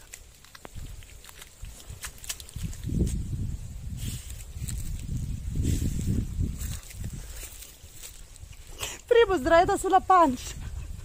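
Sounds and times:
splash-like hiss: 0:01.8 - 0:09.0.

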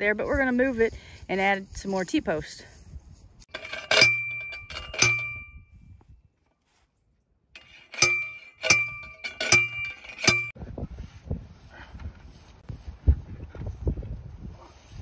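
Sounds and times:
post driver metallic clangs: 0:03.5 - 0:05.6, 0:07.6 - 0:10.6.

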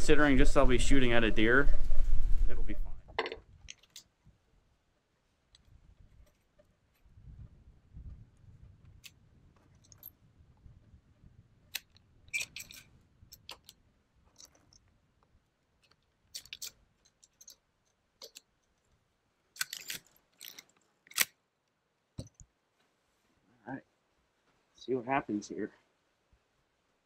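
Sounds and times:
cartridges clicking into rifle magazine: 0:11.7 - 0:13.8, 0:15.9 - 0:17.6.

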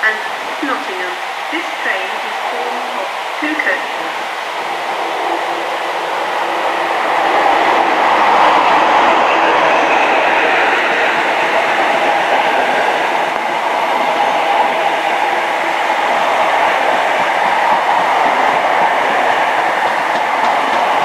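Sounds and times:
train passing: 0:00.0 - 0:21.0
train wheels rumbling on rails: 0:00.0 - 0:21.0.

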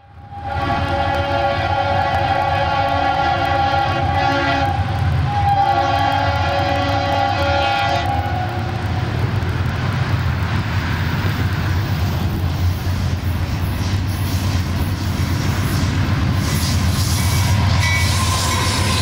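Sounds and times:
oncoming train noise: 0:00.0 - 0:19.0
locomotive air horn: 0:00.3 - 0:08.6
diesel engine rumble: 0:08.1 - 0:16.9.

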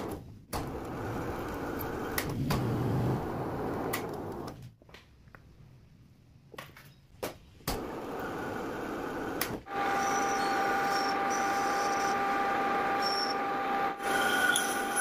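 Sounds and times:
cutting tool scraping whine: 0:09.7 - 0:15.0
metal lathe running: 0:09.7 - 0:15.0.

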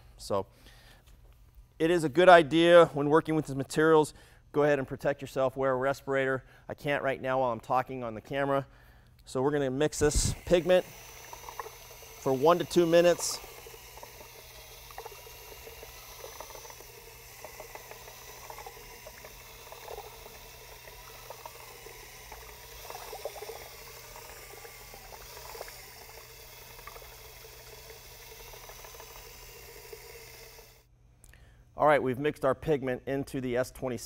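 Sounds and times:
drill mixing liquid in bucket: 0:09.4 - 0:30.9.

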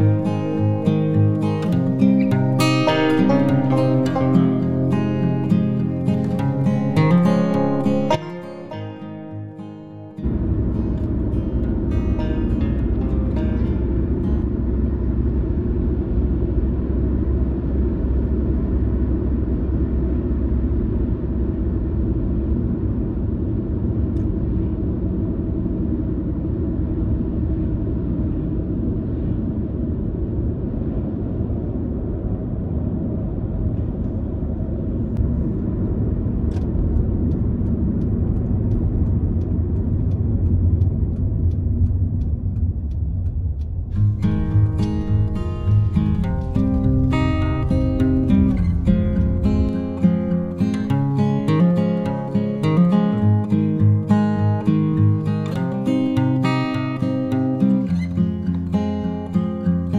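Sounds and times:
low background rumble: 0:00.0 - 0:59.9
faint ticks: 0:36.5 - 0:44.2.

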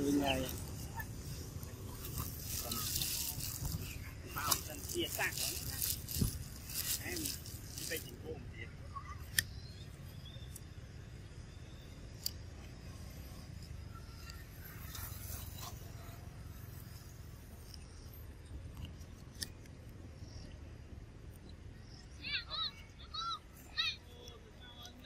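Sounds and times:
monkey chewing crisp fruit: 0:00.0 - 0:08.2.

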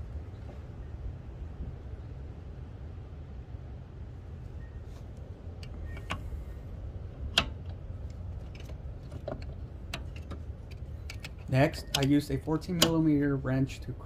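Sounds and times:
steady low rumble: 0:00.0 - 0:14.0
wrench clinking on metal fitting: 0:09.9 - 0:13.2.

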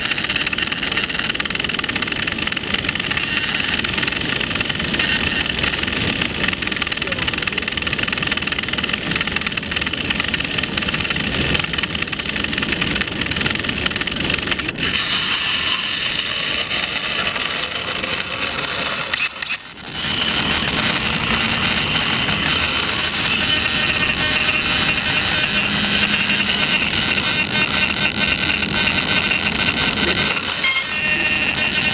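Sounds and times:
propeller motors whirring: 0:00.0 - 0:31.9.

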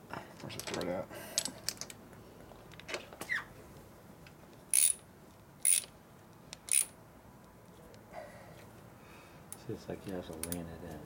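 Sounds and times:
hand ratchet clicking: 0:04.7 - 0:05.0, 0:05.6 - 0:05.9, 0:06.5 - 0:06.9.

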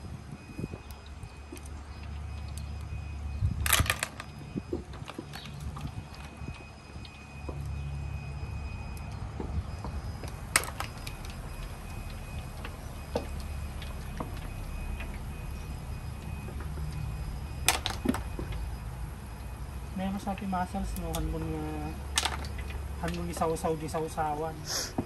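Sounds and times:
mussel shells clicking: 0:22.0 - 0:24.1.

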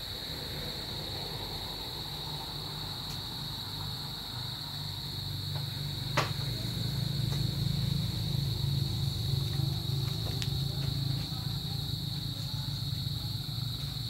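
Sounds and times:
insect drone: 0:00.0 - 0:14.0.

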